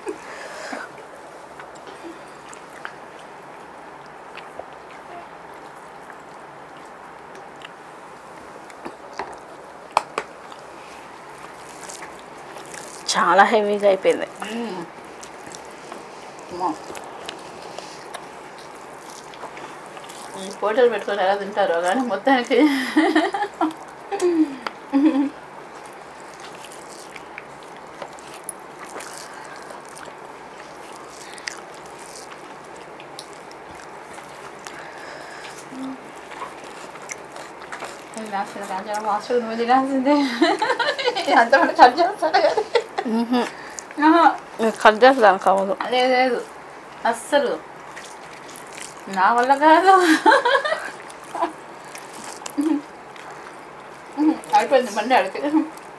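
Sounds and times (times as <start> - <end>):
chewing: 0.0 - 55.9
room hiss: 0.0 - 55.9
rice squished by hand: 8.5 - 22.3, 25.7 - 39.1, 43.5 - 54.9.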